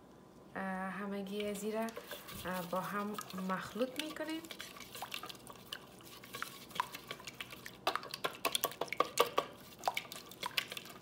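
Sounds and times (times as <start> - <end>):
whisk beating in a ceramic bowl: 1.4 - 11.0.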